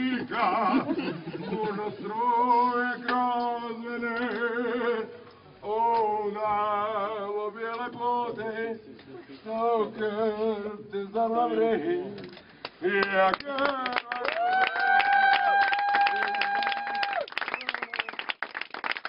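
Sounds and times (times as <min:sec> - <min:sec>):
man singing long notes: 0:00.0 - 0:12.2.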